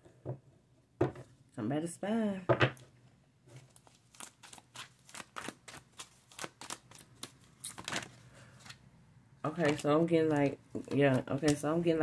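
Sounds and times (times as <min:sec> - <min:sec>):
cards being shuffled: 0:03.6 - 0:08.8, 0:09.5 - 0:11.7.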